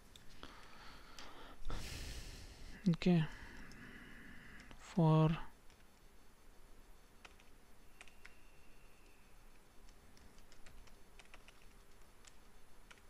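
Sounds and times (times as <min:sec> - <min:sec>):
faint keyboard typing: 0:02.8 - 0:06.2, 0:07.0 - 0:13.0.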